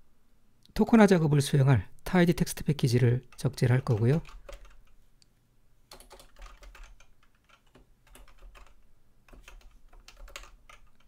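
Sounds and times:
faint keyboard typing: 0:02.9 - 0:05.1, 0:05.9 - 0:11.0.

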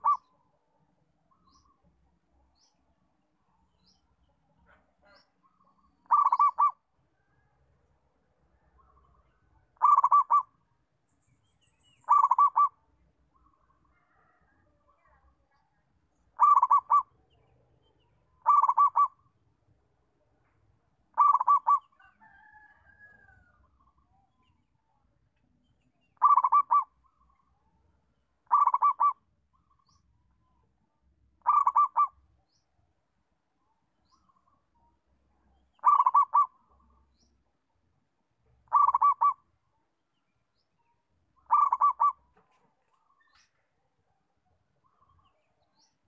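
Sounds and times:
dove cooing: 0:00.0 - 0:00.3, 0:06.0 - 0:06.8, 0:09.8 - 0:10.6, 0:12.0 - 0:12.8, 0:16.4 - 0:17.1, 0:18.4 - 0:19.2, 0:21.1 - 0:22.0, 0:26.2 - 0:26.9, 0:28.5 - 0:29.2, 0:31.4 - 0:32.2, 0:35.8 - 0:36.7, 0:38.7 - 0:39.5, 0:41.5 - 0:42.6
faint wavering bird call: 0:00.0 - 0:00.5, 0:05.1 - 0:06.8, 0:09.8 - 0:10.6, 0:11.8 - 0:12.8, 0:16.4 - 0:17.2, 0:18.4 - 0:19.3, 0:21.1 - 0:24.4, 0:26.0 - 0:27.5, 0:28.5 - 0:30.0, 0:31.4 - 0:32.6, 0:35.8 - 0:37.3, 0:38.7 - 0:39.5, 0:41.4 - 0:42.3.

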